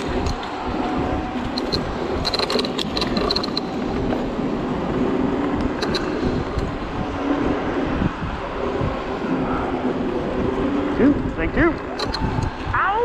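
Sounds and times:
scooter tyre noise: 0.0s - 13.0s
wind buffeting microphone: 0.0s - 13.0s
sharp rattling clicks: 1.4s - 4.4s, 5.3s - 6.8s, 11.7s - 12.5s.

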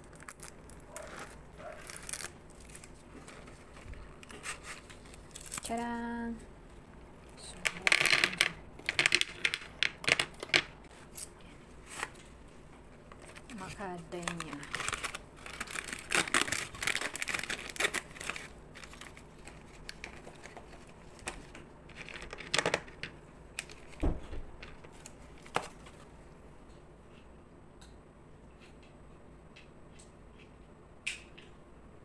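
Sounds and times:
foil crinkling and tearing: 0.0s - 6.4s, 13.1s - 22.9s.

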